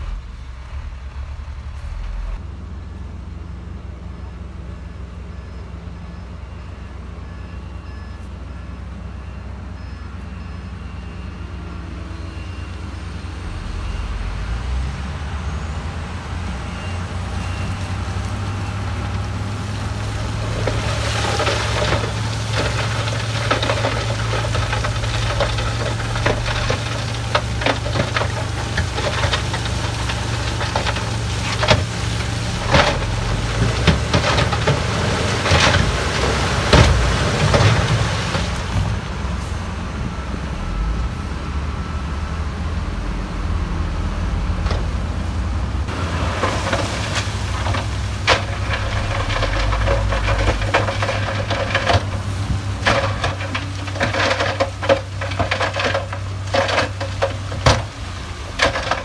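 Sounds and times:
diesel truck engines running: 0:00.0 - 0:59.0
rock clattering and knocking: 0:20.5 - 0:38.5, 0:46.4 - 0:59.0.

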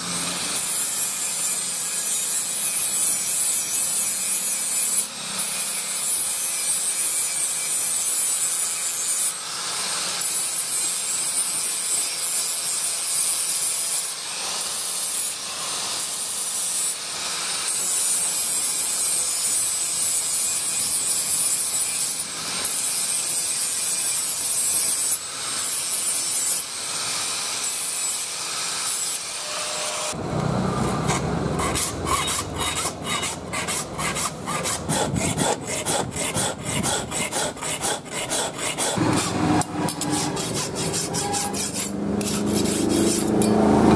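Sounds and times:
angle grinder grinding steel: 0:00.0 - 0:43.9
hand file rasping on metal: 0:30.8 - 0:43.6.

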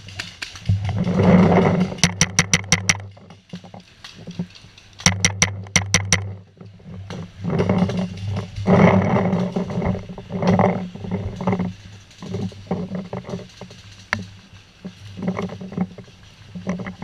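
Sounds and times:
loud uneven rustling: 0:00.0 - 0:17.0.

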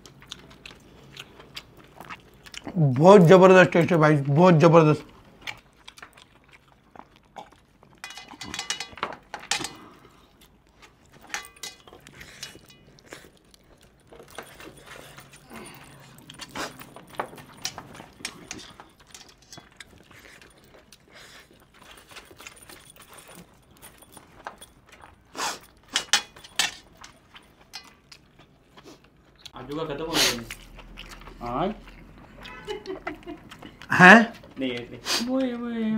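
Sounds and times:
metal rings clinking on steel plate: 0:08.0 - 0:09.9, 0:11.2 - 0:12.9, 0:14.2 - 0:19.8, 0:25.9 - 0:28.0.

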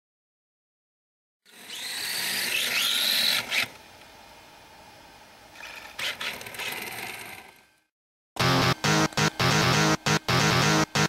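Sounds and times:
electric motor whining: 0:01.5 - 0:03.8.

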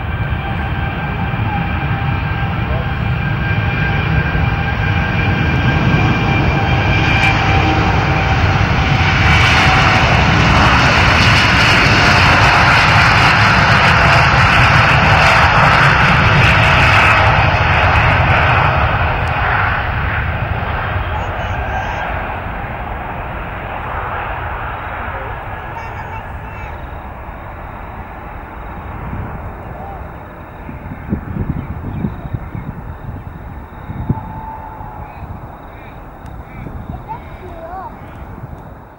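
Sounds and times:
jet engines at takeoff power: 0:00.0 - 0:38.9.

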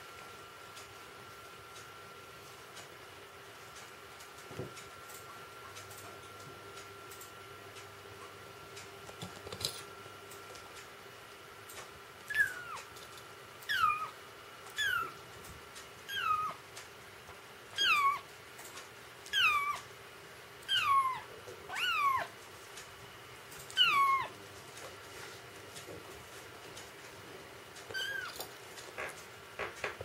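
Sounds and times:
kitten mewing: 0:12.3 - 0:12.9, 0:20.6 - 0:22.3, 0:23.7 - 0:24.4.

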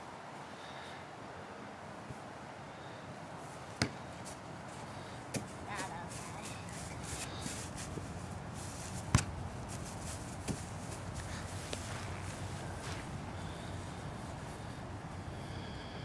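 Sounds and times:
football kick thuds: 0:03.8 - 0:04.0, 0:09.0 - 0:09.4, 0:10.3 - 0:12.3.

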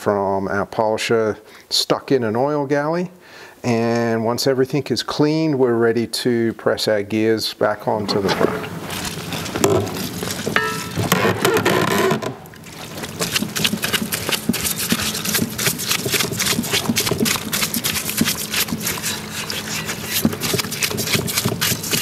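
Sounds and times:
bristle brush scrubbing metal: 0:12.7 - 0:22.0.

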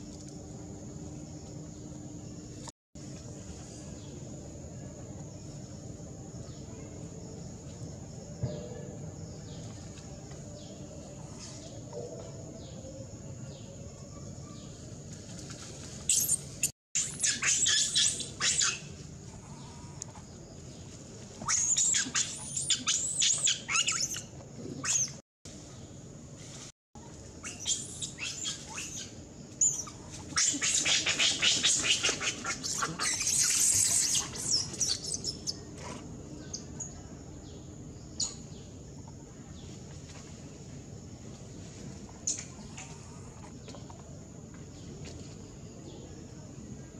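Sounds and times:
monkeys screaming: 0:17.0 - 0:18.9, 0:29.7 - 0:35.0.

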